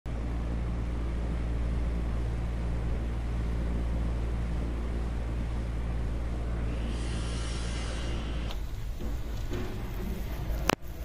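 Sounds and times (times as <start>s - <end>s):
low droning hum: 0.1s - 11.0s.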